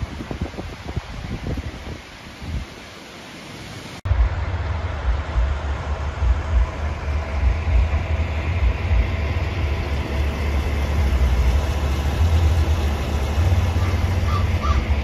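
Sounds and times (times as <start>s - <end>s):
wind buffeting microphone: 0.0s - 2.8s
river flowing: 0.0s - 15.0s.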